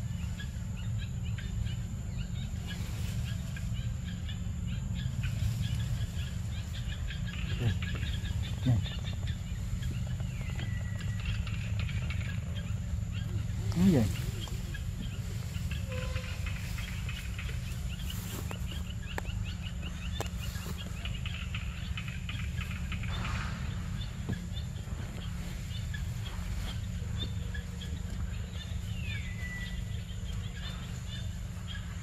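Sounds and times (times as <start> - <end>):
birds chirping: 0.0 - 32.0
high insect-like whine: 0.0 - 32.0
low rumble: 0.0 - 32.0.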